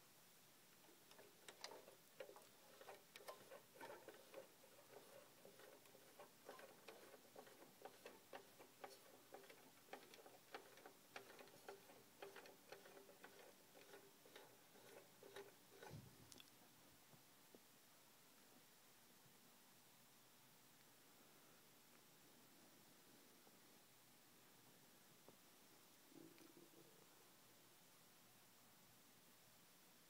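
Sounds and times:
toy ladder plastic clicking: 0:00.8 - 0:16.5.

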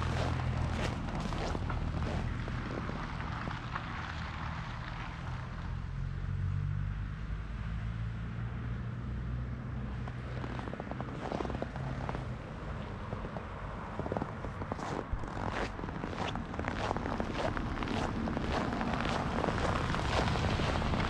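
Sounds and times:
footsteps on snow: 0:00.0 - 0:03.0, 0:10.1 - 0:12.2, 0:14.0 - 0:21.0.

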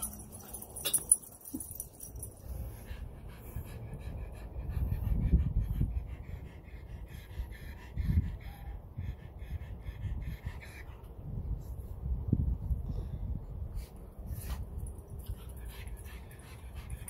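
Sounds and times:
dog panting: 0:02.4 - 0:11.6, 0:14.2 - 0:17.0.

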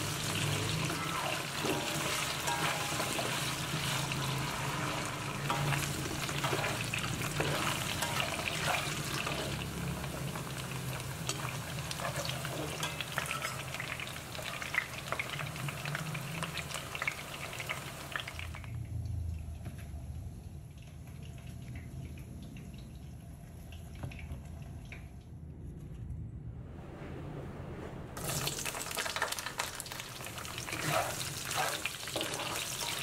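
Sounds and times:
potatoes sizzling in oil: 0:00.0 - 0:18.6, 0:28.2 - 0:33.0
spatula scraping a pan: 0:00.6 - 0:09.7, 0:30.7 - 0:33.0.

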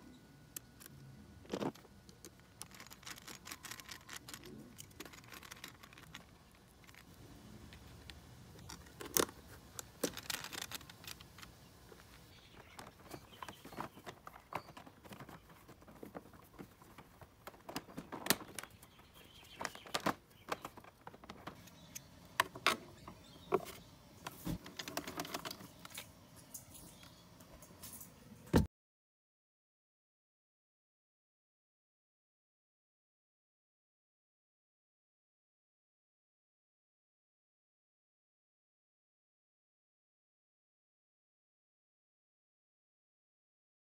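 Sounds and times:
plastic clicks and knocks: 0:08.0 - 0:18.8.

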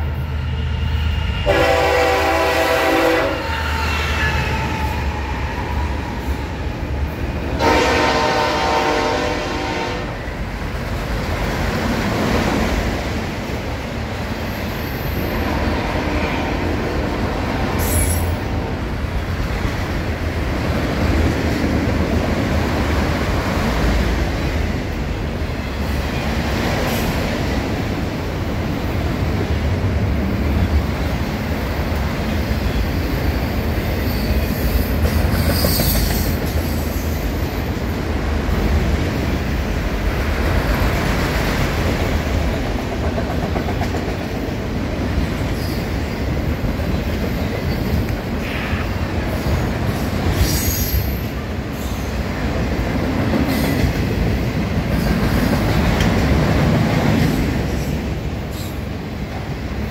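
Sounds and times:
train wheels rumbling on rails: 0:00.0 - 0:59.9
high-pitched wheel squeals: 0:33.9 - 0:37.2.

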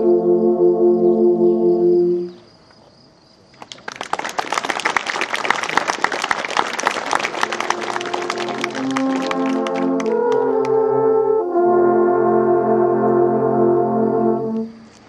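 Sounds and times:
alphorn ensemble chord: 0:00.0 - 0:02.3, 0:07.3 - 0:14.8
audience applauding: 0:03.6 - 0:10.8.

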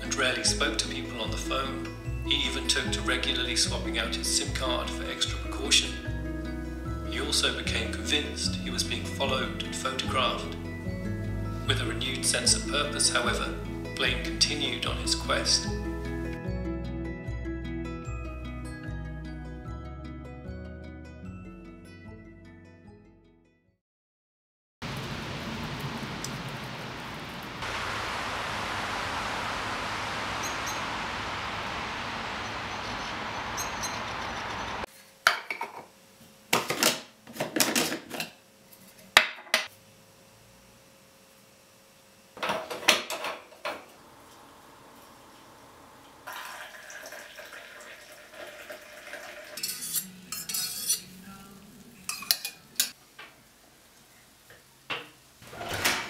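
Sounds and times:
rain falling on a wet street: 0:24.8 - 0:34.9
metal coffee pot clinking: 0:46.3 - 0:51.1.

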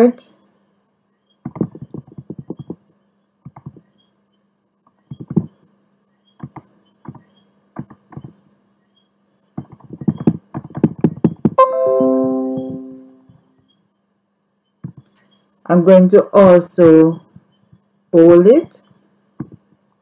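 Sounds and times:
notification chime: 0:11.6 - 0:13.2.

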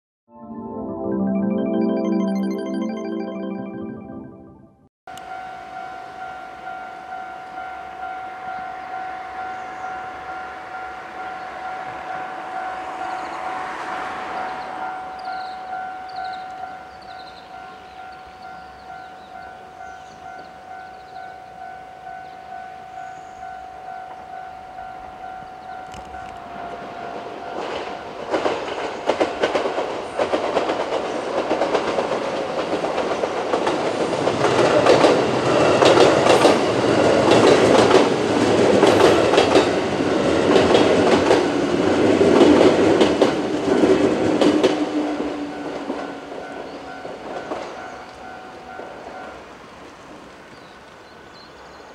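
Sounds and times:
railway crossing alarm ringing: 0:05.1 - 0:30.7, 0:33.6 - 0:49.6
electric train passing: 0:05.2 - 0:51.0.

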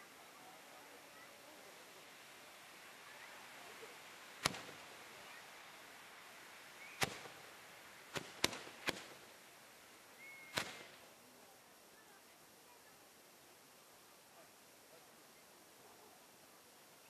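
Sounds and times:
fireworks spraying sparks hiss: 0:01.1 - 0:11.2
sharp firework bangs: 0:04.4 - 0:05.0, 0:07.0 - 0:09.3, 0:10.4 - 0:11.1.

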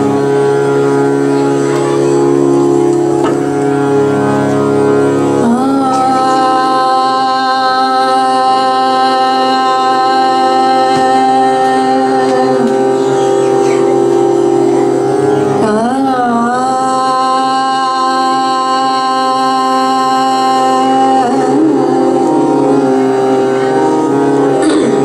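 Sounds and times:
harmonium sustained notes: 0:00.0 - 0:25.0
woman singing devotional song: 0:05.3 - 0:13.1, 0:15.5 - 0:25.0.

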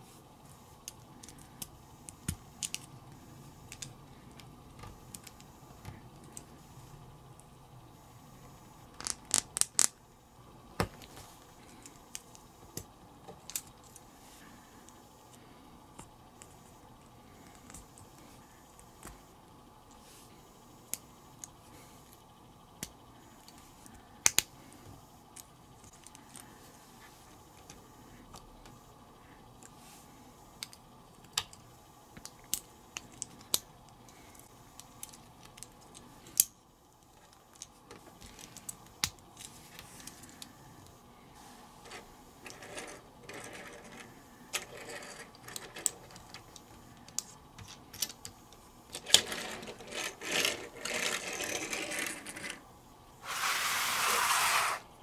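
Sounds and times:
toy handled on wooden tabletop: 0:49.2 - 0:52.6, 0:53.2 - 0:54.8.

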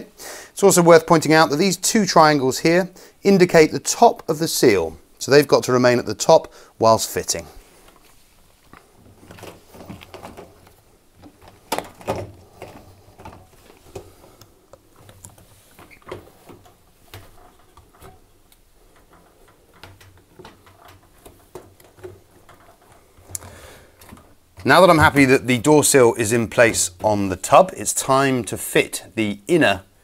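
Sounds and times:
rubber seal knocks and rubs: 0:08.8 - 0:25.5.

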